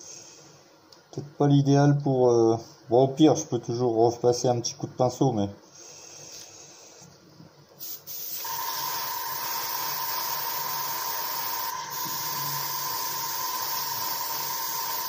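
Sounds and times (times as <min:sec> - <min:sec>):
airbrush spraying hiss: 0:07.8 - 0:15.0
high whistle: 0:08.4 - 0:15.0.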